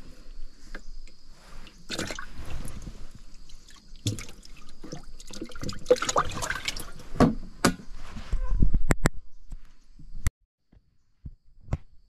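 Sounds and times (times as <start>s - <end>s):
fish flapping in water: 1.9s - 7.0s
water splashing in metal tin: 1.9s - 7.0s.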